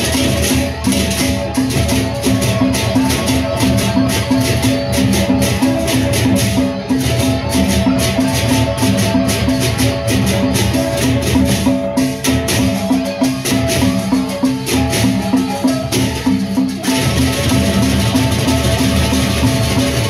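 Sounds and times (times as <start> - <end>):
barrel drums beating: 0.0 - 20.0
hand cymbals clashing: 0.0 - 20.0
pitched metallic notes: 0.0 - 20.0.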